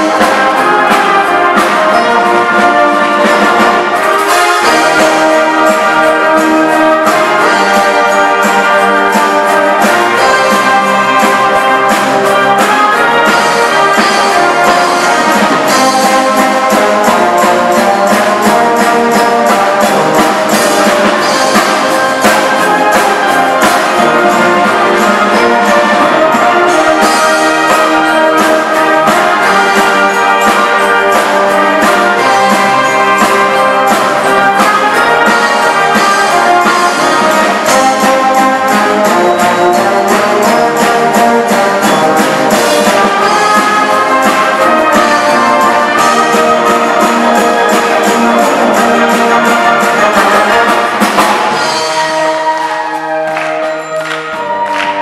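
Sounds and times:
brass band playing: 0:00.0 - 0:55.0
percussion strikes: 0:00.0 - 0:55.0.

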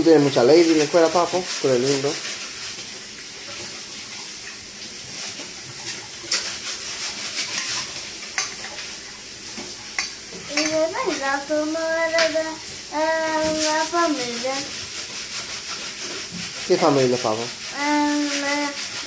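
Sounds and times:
fork clinking in metal bowl: 0:10.0 - 0:10.8
person humming: 0:17.8 - 0:18.8.

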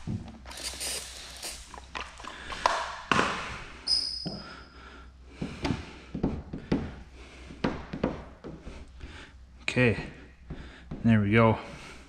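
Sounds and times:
short hiss: 0:00.5 - 0:01.7.

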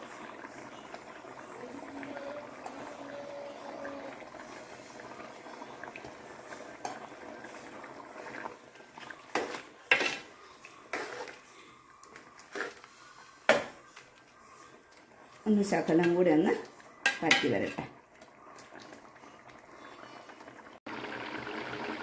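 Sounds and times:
curry bubbling in pot: 0:00.0 - 0:22.0
metal ladle scraping pot: 0:09.3 - 0:10.3, 0:10.9 - 0:11.4.

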